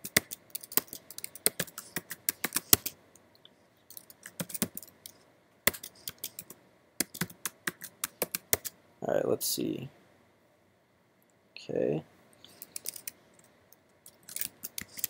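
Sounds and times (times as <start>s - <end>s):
computer keyboard typing: 0.0s - 3.0s, 3.9s - 8.7s, 12.5s - 13.2s, 14.0s - 15.0s.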